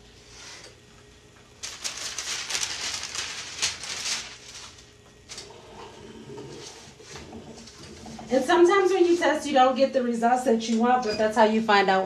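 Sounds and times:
paper and fabric rustling: 1.6s - 4.9s.

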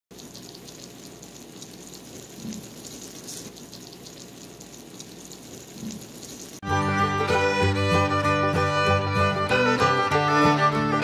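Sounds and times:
casserole sizzling: 0.1s - 6.7s.

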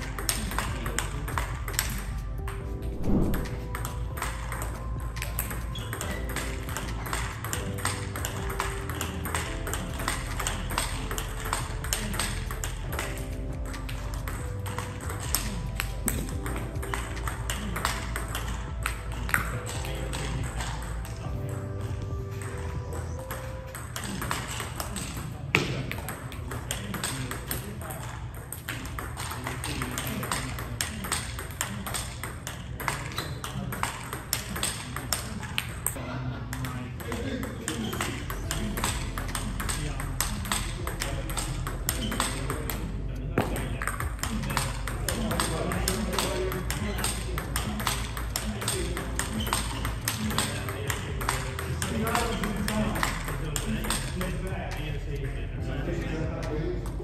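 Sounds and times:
table tennis ball clicking: 0.0s - 21.3s, 23.8s - 54.8s
background music: 0.0s - 57.0s
table tennis ball clicks: 43.4s - 54.4s.

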